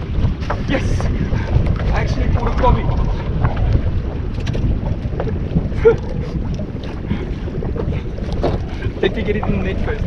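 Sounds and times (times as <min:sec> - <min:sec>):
water lapping against boat hull: 0:00.0 - 0:10.0
wind buffeting microphone: 0:00.0 - 0:10.0.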